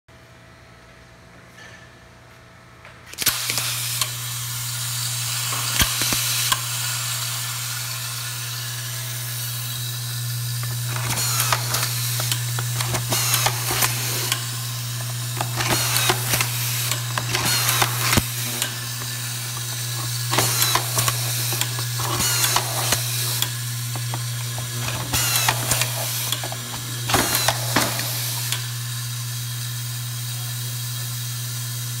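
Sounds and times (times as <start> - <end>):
machine hum: 3.2 - 31.0
screw feeder clicking: 10.6 - 28.6.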